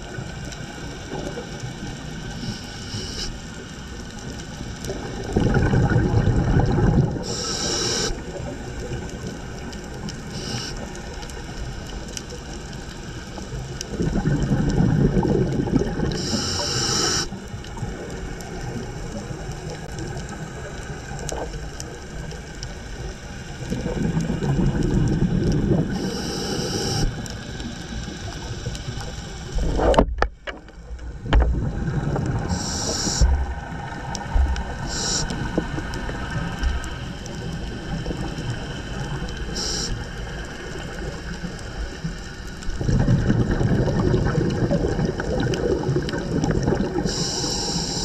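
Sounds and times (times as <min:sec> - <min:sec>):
regulator hiss: 0:02.2 - 0:03.8, 0:07.2 - 0:08.4, 0:10.2 - 0:11.4, 0:16.1 - 0:17.4, 0:25.9 - 0:29.6, 0:32.5 - 0:34.0, 0:34.6 - 0:37.9, 0:38.8 - 0:42.6, 0:47.0 - 0:48.0
diver exhaling bubbles: 0:04.9 - 0:08.6, 0:13.8 - 0:19.2, 0:23.6 - 0:30.2, 0:31.0 - 0:40.0, 0:42.7 - 0:48.0
steady background hiss: 0:07.3 - 0:08.8, 0:16.2 - 0:19.6, 0:25.9 - 0:30.1, 0:32.5 - 0:37.7.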